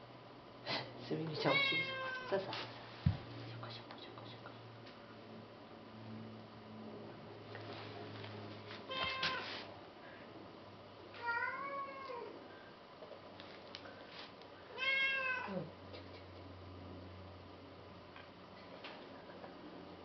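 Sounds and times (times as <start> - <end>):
cat meowing: 1.4 - 2.4, 8.9 - 9.5, 11.2 - 12.3, 14.7 - 15.7.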